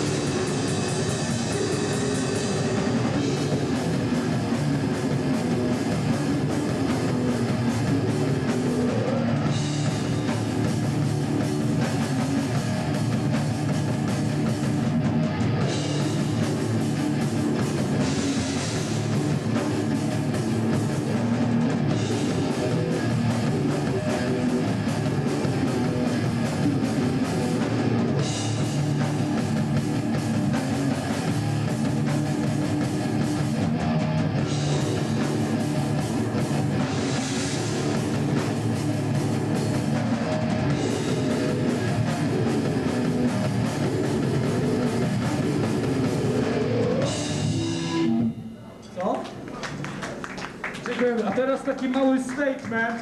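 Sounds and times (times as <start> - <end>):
electric guitar: 0.0 - 48.6
drum kit: 0.0 - 53.0.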